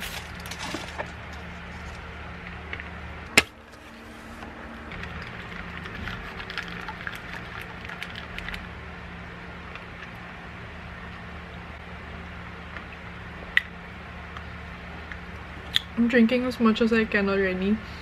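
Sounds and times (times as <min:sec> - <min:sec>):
plastic cup crinkling: 0:04.9 - 0:08.6
straw wrapper unwrapping: 0:05.0 - 0:08.6.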